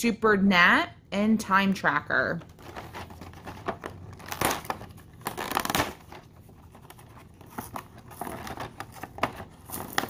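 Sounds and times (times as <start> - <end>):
plastic packaging crinkling and tearing: 2.4 - 10.0.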